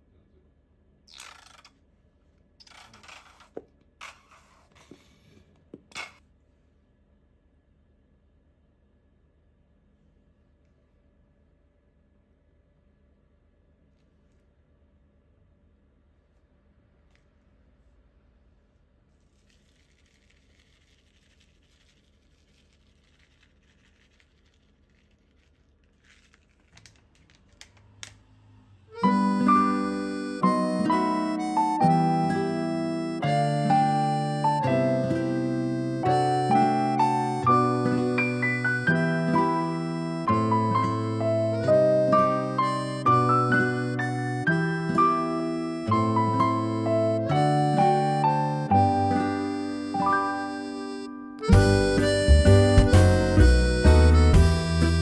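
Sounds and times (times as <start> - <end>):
faint rustling patter of flakes: 19.1 - 27.7
squeeze bottle squirting sauce: 19.3 - 27.1.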